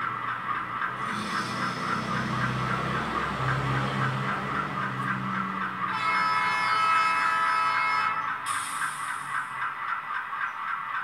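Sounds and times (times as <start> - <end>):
diesel locomotive engine pulse: 0.0 - 11.0
locomotive horn: 5.8 - 8.4.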